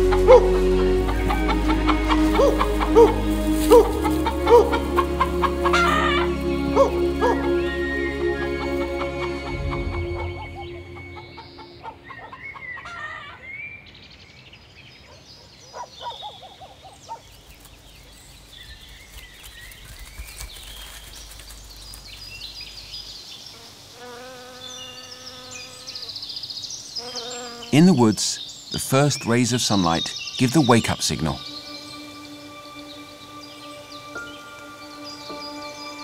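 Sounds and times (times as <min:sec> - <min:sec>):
low fluttering bird call: 0:00.0 - 0:13.5, 0:15.7 - 0:23.1
steady low bird call: 0:00.0 - 0:13.8
birds chirping and whistling: 0:00.0 - 0:23.5, 0:24.7 - 0:36.0.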